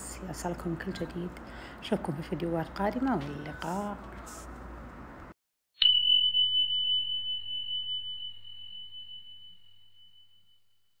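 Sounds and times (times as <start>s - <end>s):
bell-like ding: 5.8s - 10.6s.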